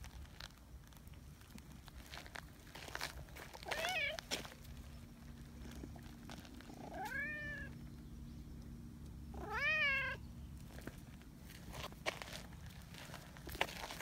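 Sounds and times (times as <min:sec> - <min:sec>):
cat meowing: 0:03.7 - 0:04.2, 0:06.9 - 0:07.7, 0:09.4 - 0:10.2.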